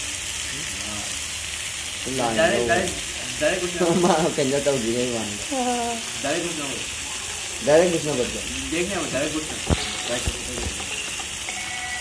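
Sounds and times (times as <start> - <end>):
chicken sizzling in a pan: 0.0 - 12.0.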